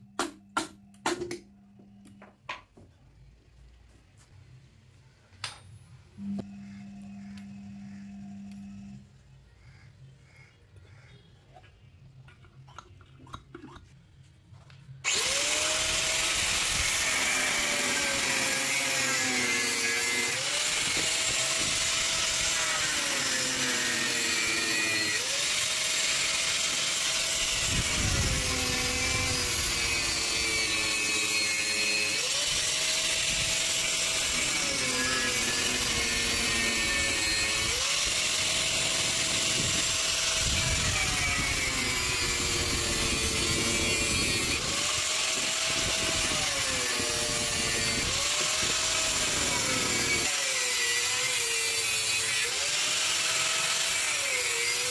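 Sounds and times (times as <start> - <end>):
angle grinder cutting metal: 15.0 - 54.9.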